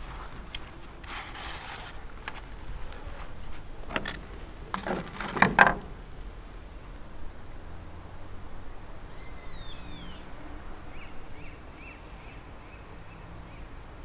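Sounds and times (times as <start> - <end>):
hands pressing soil: 0.0 - 6.3.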